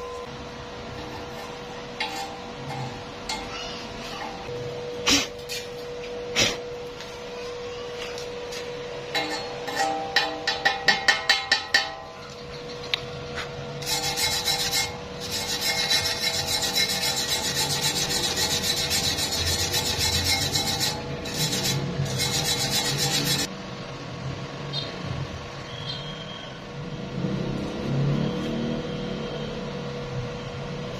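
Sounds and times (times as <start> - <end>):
rotary wire brush scrubbing: 0.9 - 3.5, 13.8 - 23.5
chipping hammer tapping metal: 9.1 - 13.0.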